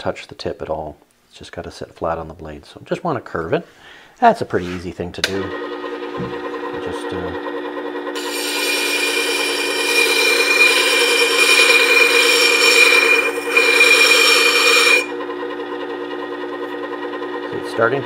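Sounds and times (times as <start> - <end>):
motor hum: 5.3 - 18.0
grinding disc on steel: 5.5 - 17.7.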